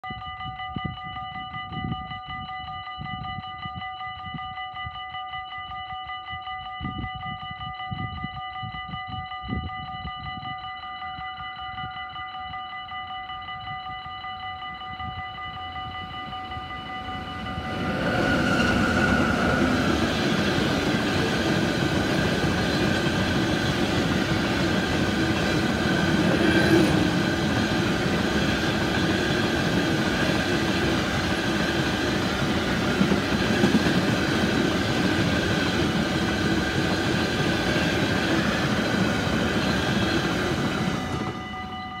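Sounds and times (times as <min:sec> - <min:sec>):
level crossing warning bell: 0:00.0 - 0:42.0
freight train rumble and wheel clatter: 0:14.6 - 0:42.0.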